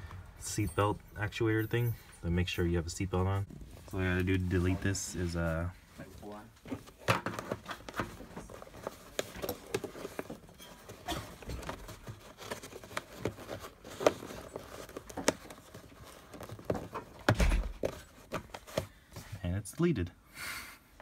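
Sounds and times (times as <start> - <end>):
hands handling wiring connector: 6.6 - 19.0.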